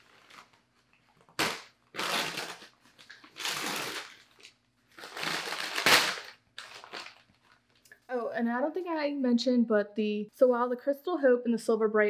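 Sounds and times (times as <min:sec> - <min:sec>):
newspaper crinkling and rustling: 0:00.0 - 0:07.8.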